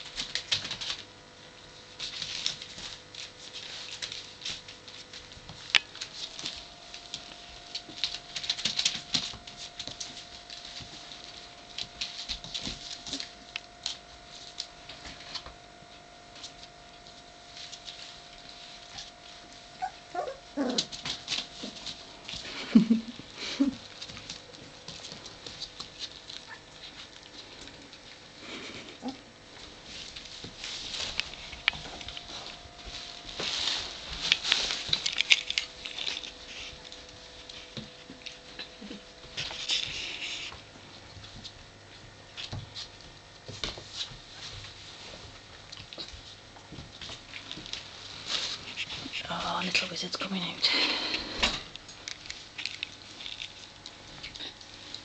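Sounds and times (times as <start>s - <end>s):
puppies pattering and clicking: 0.0s - 55.0s
puppy whining and squeaking: 19.8s - 20.9s.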